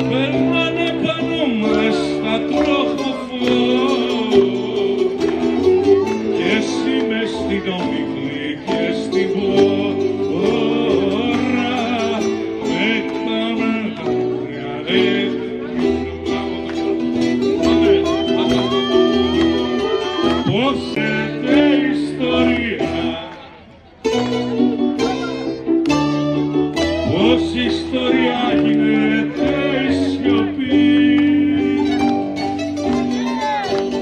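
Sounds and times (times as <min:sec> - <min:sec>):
man singing: 0:00.0 - 0:16.6, 0:19.7 - 0:23.6, 0:26.8 - 0:32.4
plucked strings: 0:00.0 - 0:23.4, 0:24.0 - 0:34.0.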